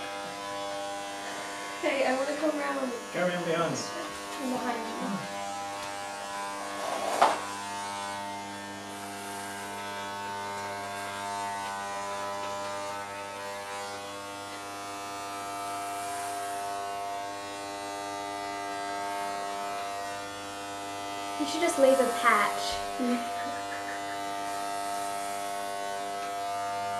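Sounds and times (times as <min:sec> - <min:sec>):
electric hair clippers buzzing: 0:00.0 - 0:26.9.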